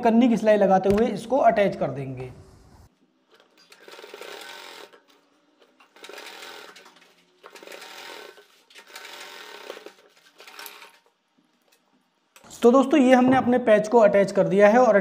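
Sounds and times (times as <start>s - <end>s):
sewing machine stitching: 3.6s - 5.0s, 5.9s - 11.0s.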